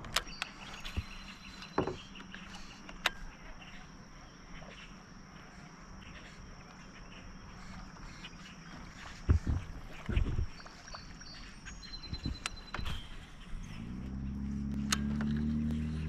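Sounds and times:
sharp knocks and clicks: 0.0 - 3.2.

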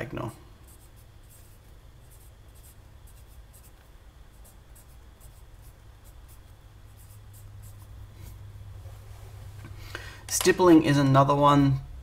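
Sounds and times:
low steady hum: 0.0 - 12.0
pencil writing on paper: 0.6 - 8.0.

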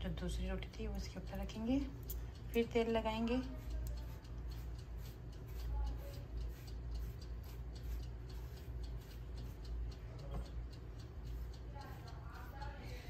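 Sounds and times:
low steady hum: 0.0 - 13.0
pastry brush patting dough: 2.6 - 13.0.

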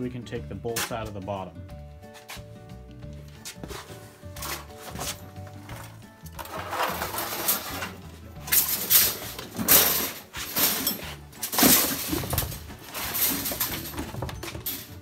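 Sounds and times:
board scraping on wood: 3.4 - 8.0
rustling: 3.4 - 15.0.

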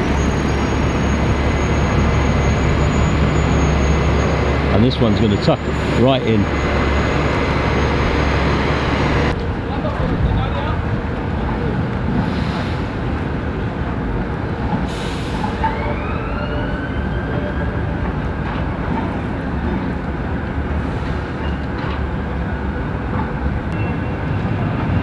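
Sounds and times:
bus engines rumbling: 0.0 - 25.0.

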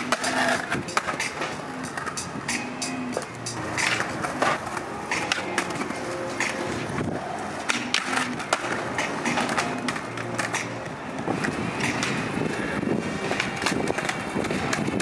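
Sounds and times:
skateboard clacks: 0.0 - 15.0
skateboard wheels rolling on concrete: 0.0 - 15.0.

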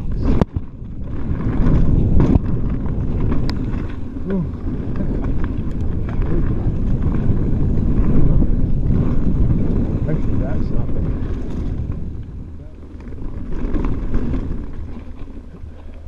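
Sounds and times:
bike rattling over bumps: 0.0 - 16.0
bike tyres rolling on dirt: 0.0 - 16.0
wind buffeting microphone: 0.0 - 16.0.

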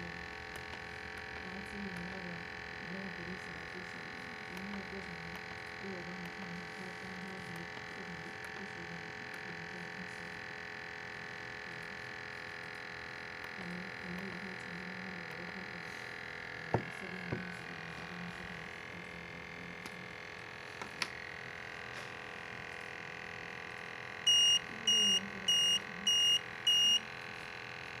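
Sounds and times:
steady hum: 0.0 - 28.0
high-pitched alarm beeps: 24.3 - 27.0.

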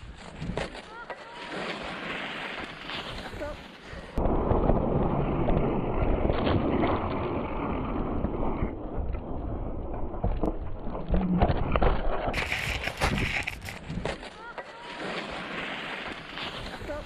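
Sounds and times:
skis scraping on snow: 0.0 - 4.1, 12.3 - 17.0
wind noise on microphone: 4.2 - 14.1.

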